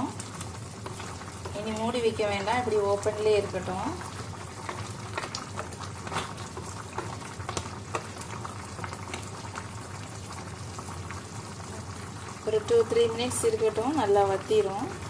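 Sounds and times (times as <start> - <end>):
wooden spoon stirring: 0.0 - 9.4
curry bubbling at a boil: 0.0 - 15.0.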